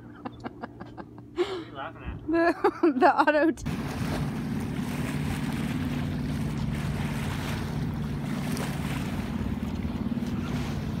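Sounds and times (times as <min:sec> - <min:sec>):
low hum: 0:00.0 - 0:11.0
water rushing past: 0:03.7 - 0:11.0.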